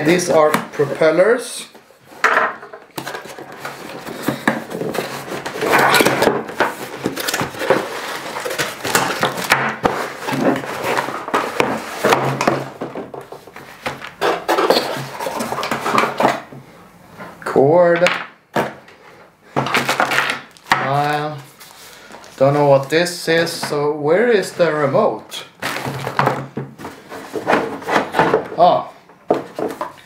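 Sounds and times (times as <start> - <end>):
packaging rustling: 3.0 - 16.2, 19.7 - 23.6, 25.5 - 28.5
boxes scraping on table: 3.0 - 16.5, 25.6 - 28.5.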